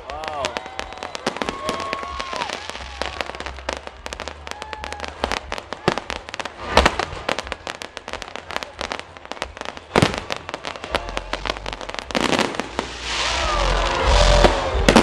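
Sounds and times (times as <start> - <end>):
fireworks crackling: 0.0 - 15.0
loud firework bang: 5.8 - 7.6, 9.9 - 15.0.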